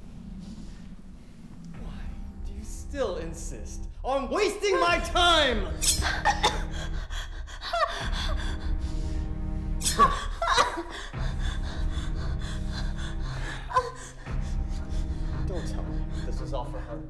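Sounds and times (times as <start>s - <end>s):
low droning background music: 0.0s - 17.0s
woman gasping and whimpering: 5.9s - 9.2s, 9.8s - 15.2s.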